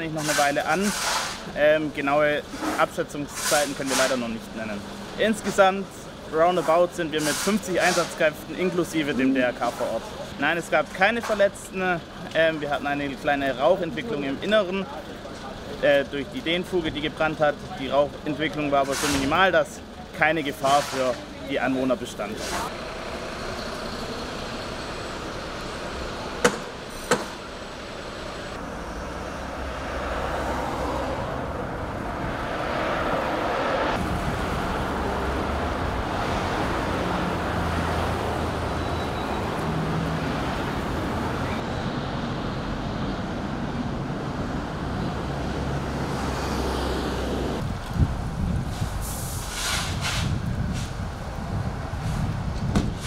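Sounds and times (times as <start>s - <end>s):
road traffic rumble: 0.0s - 53.0s
sharp knocks: 26.4s - 27.4s, 52.7s - 53.0s.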